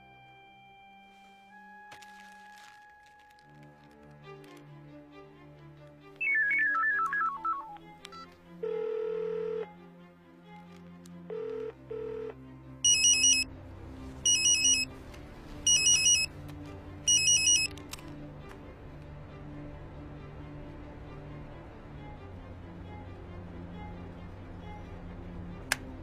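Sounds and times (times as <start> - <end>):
quiet low film score music: 0.0 - 26.0
electronic beeps: 6.2 - 8.2, 12.9 - 13.4, 14.3 - 14.9, 15.7 - 16.3, 17.1 - 17.7
mobile phone ringtone trilling: 8.6 - 9.7, 11.3 - 13.5, 14.3 - 14.9, 15.7 - 16.3, 17.1 - 17.7.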